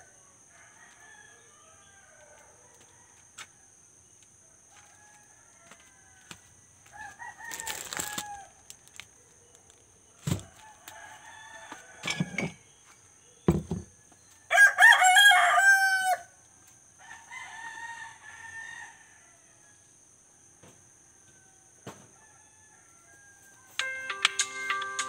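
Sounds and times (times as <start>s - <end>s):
roosters crowing: 4.6s - 8.7s, 10.2s - 12.7s, 14.5s - 16.4s, 17.0s - 19.6s
dull thumps: 13.5s - 13.9s.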